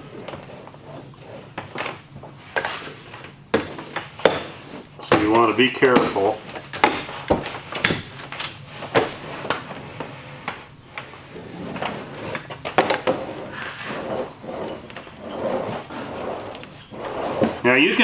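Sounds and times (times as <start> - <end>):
rolling pin rolling on laminate: 0.0 - 18.0.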